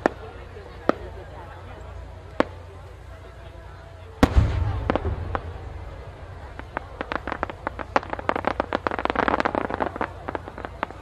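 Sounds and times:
firework crackling pops: 0.0 - 1.3, 2.2 - 2.9, 4.2 - 11.0
firework shell bang: 4.2 - 5.8.

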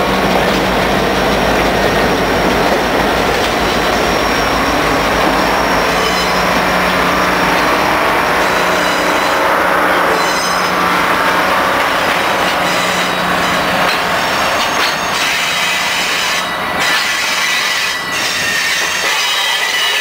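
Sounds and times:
diesel locomotive engine hum: 0.0 - 20.0
train wheels rolling: 0.0 - 20.0
wheels squealing on rails: 0.0 - 20.0.

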